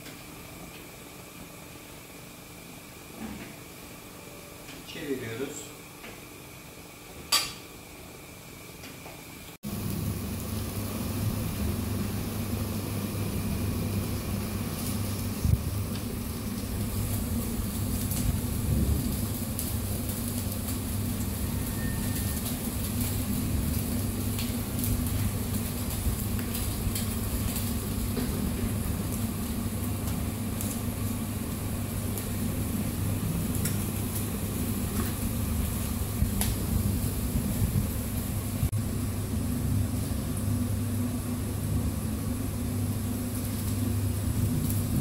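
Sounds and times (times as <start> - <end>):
low machine hum: 0.0 - 45.0
meat sizzling on a grill: 9.6 - 45.0.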